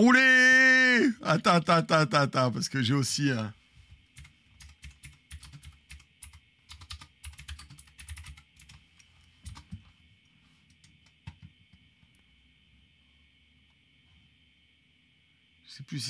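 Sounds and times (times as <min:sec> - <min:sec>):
computer keyboard typing: 0:04.2 - 0:08.8, 0:09.4 - 0:09.8, 0:10.7 - 0:11.5.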